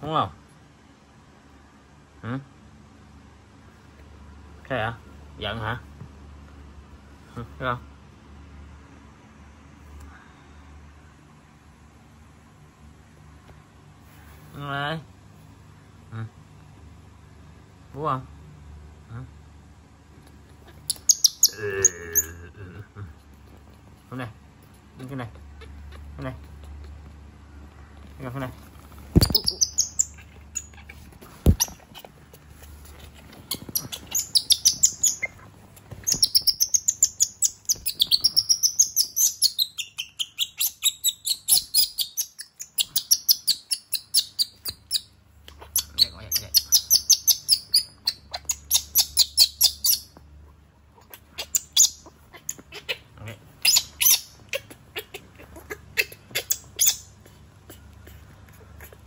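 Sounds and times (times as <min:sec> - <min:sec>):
baby monkey squealing: 0:20.6 - 0:22.5, 0:29.2 - 0:32.4, 0:33.0 - 0:50.2, 0:50.9 - 0:59.0.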